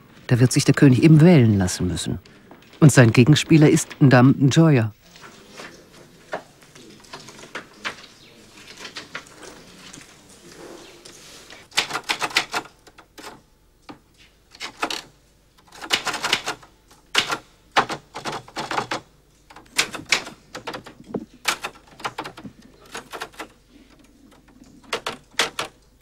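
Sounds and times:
typewriter keys striking: 11.7s - 25.9s.

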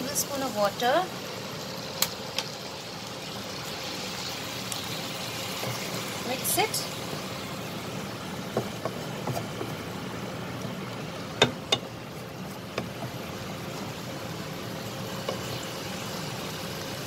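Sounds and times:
vegetables sizzling in a pan: 0.0s - 17.0s
wooden spatula knocking on pan: 8.5s - 9.8s, 11.4s - 11.9s.

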